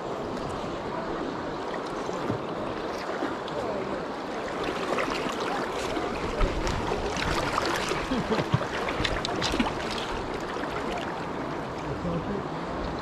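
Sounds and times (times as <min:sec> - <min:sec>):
river current rushing: 0:00.0 - 0:13.0
short sharp splashes: 0:04.5 - 0:11.1.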